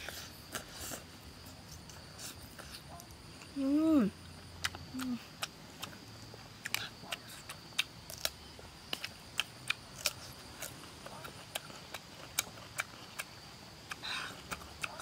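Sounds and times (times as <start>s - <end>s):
chewing crunches and clicks: 4.3s - 15.0s
person humming while eating: 4.9s - 5.4s.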